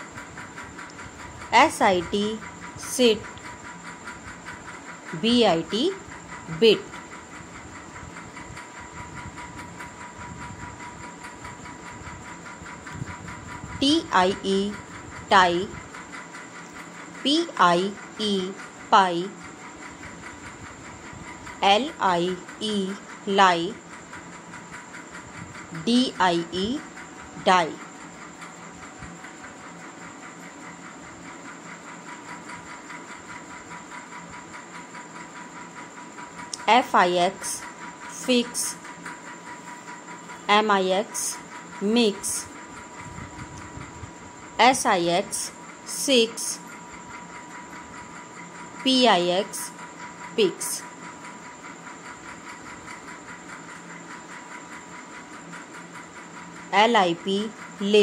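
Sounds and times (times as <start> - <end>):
faint hum: 0.0 - 58.0.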